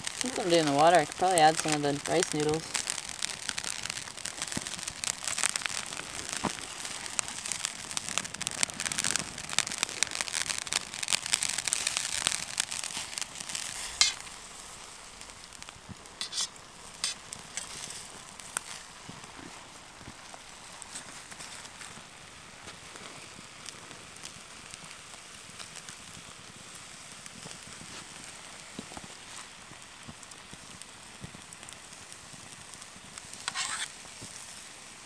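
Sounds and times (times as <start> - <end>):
food sizzling in a pan: 0.0 - 35.0
utensil stirring: 16.2 - 17.9, 33.5 - 33.9.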